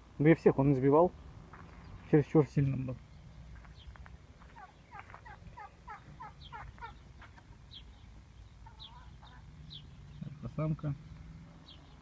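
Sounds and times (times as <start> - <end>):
turkey calling: 3.7 - 8.0, 8.6 - 10.0.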